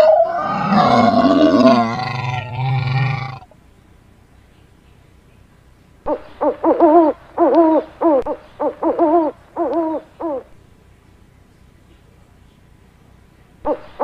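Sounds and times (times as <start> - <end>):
owl hooting: 0.0 - 3.5, 6.0 - 10.6, 13.6 - 14.0.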